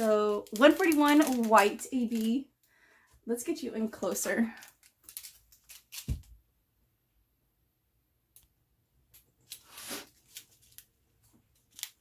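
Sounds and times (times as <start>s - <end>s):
plastic bags crinkling: 0.0s - 2.4s, 4.0s - 6.2s.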